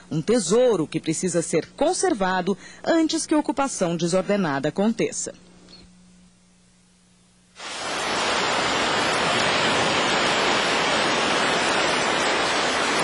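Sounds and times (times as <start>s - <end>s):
sea surf washing onto beach: 7.6s - 13.0s.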